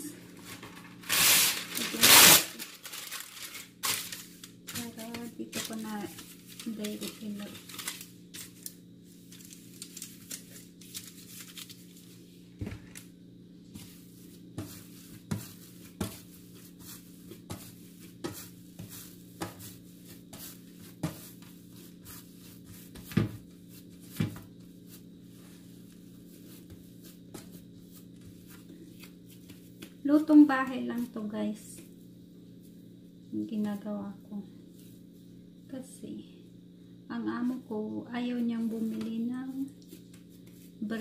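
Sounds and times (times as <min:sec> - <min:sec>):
hands shaping dough: 0:03.9 - 0:13.1, 0:13.7 - 0:32.0, 0:38.3 - 0:41.0.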